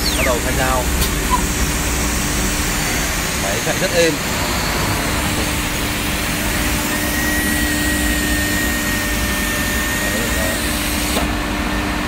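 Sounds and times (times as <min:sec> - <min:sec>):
thin high whine: 0:00.0 - 0:06.1
router whirring with low hum: 0:00.0 - 0:12.0.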